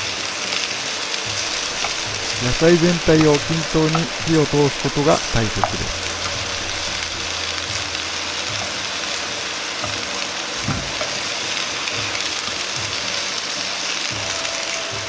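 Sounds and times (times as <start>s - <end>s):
vegetables sizzling in oil: 0.0s - 15.0s
chopsticks stirring in pan: 1.4s - 8.7s.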